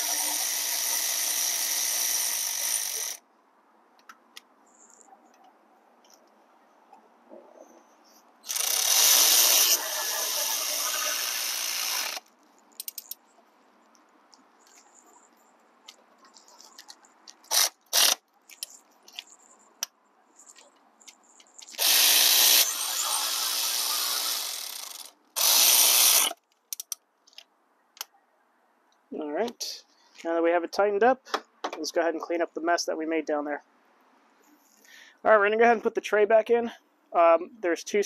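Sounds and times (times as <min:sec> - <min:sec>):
electric ratchet spinning: 0:00.0 - 0:03.2, 0:08.4 - 0:13.2, 0:17.5 - 0:18.2, 0:21.6 - 0:26.9.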